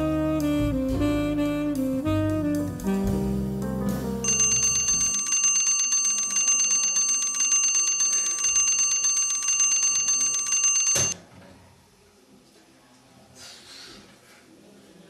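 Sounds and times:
bell alarm clock ringing: 0:04.2 - 0:11.2
knock stopping alarm clock: 0:10.8 - 0:11.2.

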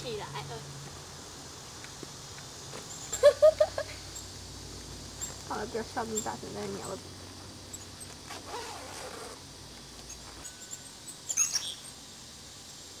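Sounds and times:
songbirds chirping: 0:00.0 - 0:08.3.

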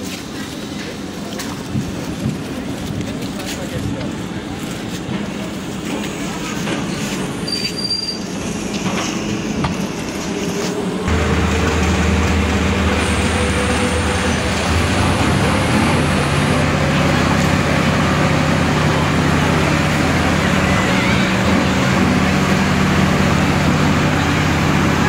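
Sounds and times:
diesel engine humming: 0:08.2 - 0:25.0.

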